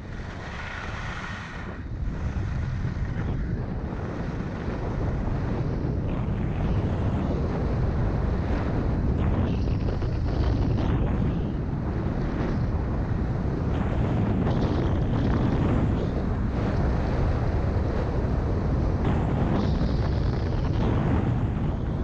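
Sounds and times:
wind buffeting a microphone: 0.0 - 22.0
skis sliding over snow: 0.1 - 3.1.

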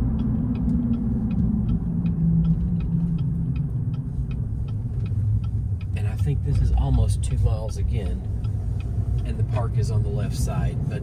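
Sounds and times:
faint regular ticking: 0.0 - 11.0
vehicle engine rumble and road noise: 0.0 - 11.0.

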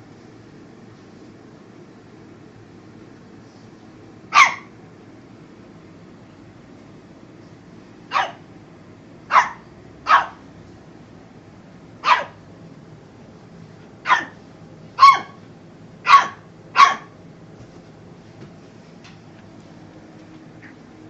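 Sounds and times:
dog barking: 4.3 - 4.7, 8.1 - 8.4, 9.3 - 10.4, 12.0 - 12.4, 14.0 - 14.4, 15.0 - 15.4, 16.0 - 17.1.

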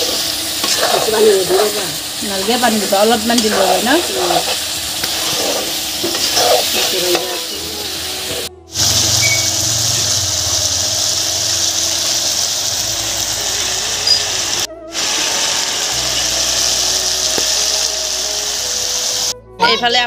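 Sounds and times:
chicken frying in oil: 0.0 - 7.1, 8.8 - 19.2
low hum: 8.5 - 14.7.

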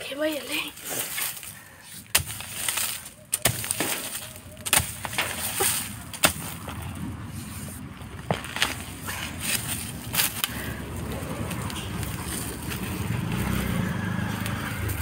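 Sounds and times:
soil crumbling: 0.0 - 15.0
hoe chopping into dry soil: 0.8 - 10.6.

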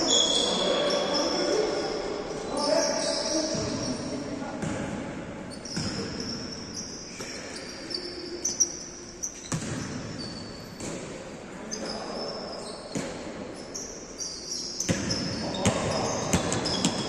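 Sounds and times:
sneakers squeaking on floor: 0.0 - 17.0
basketball bouncing on court: 4.6 - 6.4, 9.4 - 11.2, 14.8 - 17.0.

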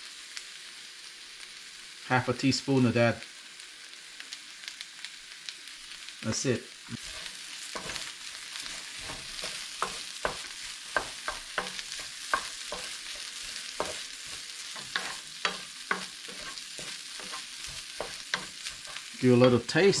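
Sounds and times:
rice sizzling in frying pan: 0.0 - 20.0
utensil scraping against pan: 7.0 - 20.0.

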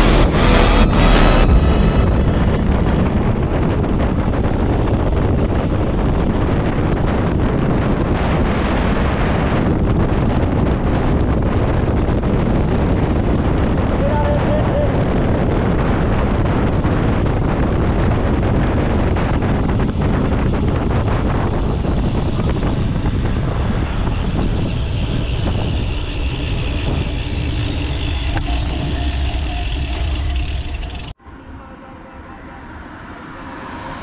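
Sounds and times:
tyre and road rumble: 0.0 - 31.2
wind buffeting microphone: 1.4 - 31.2
car passing: 21.5 - 34.0.

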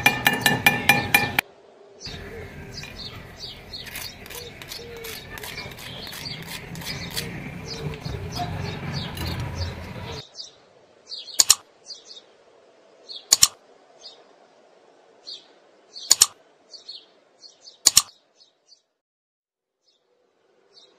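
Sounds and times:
noisy background sound: 0.0 - 16.7
mouse clicks: 11.4 - 11.6, 13.3 - 13.6, 16.1 - 16.4, 17.8 - 18.2.

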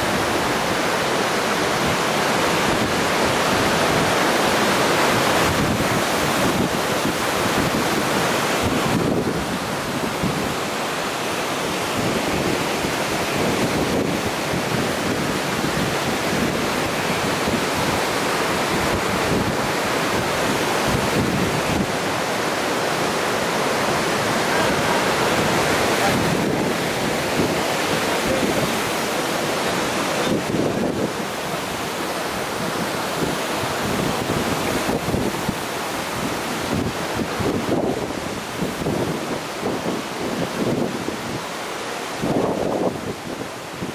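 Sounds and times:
waterfall roaring: 0.0 - 43.9
wind buffeting microphone: 1.6 - 10.8, 11.4 - 43.9.

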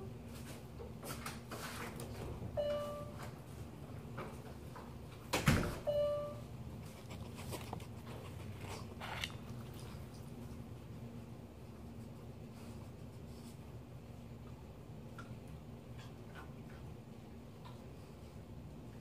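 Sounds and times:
front door shutting thud: 5.3 - 5.9.

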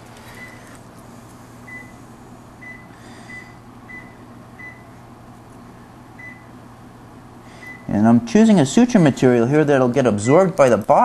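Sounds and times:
monitor beeping: 0.0 - 0.8, 1.7 - 2.0, 2.6 - 5.0, 6.2 - 6.5, 7.6 - 8.0, 10.2 - 11.0
low steady hum: 0.0 - 11.0.

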